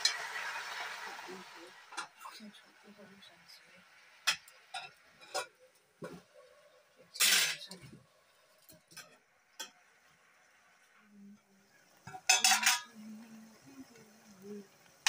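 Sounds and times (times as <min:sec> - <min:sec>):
metal utensil clinking on steel pan: 0:12.1 - 0:13.0.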